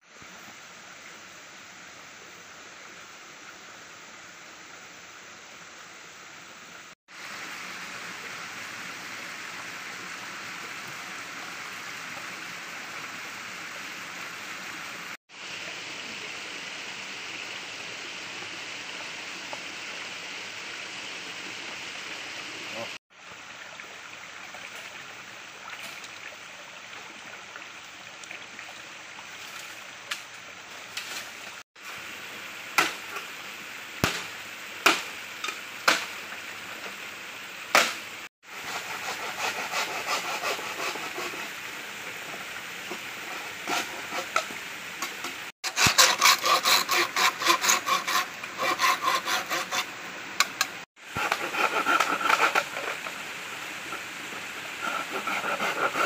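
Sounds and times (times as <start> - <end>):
flowing stream hiss: 0.0 - 56.0
machete chopping bamboo: 32.8 - 33.0, 34.0 - 35.1, 35.8 - 36.1, 37.7 - 38.0.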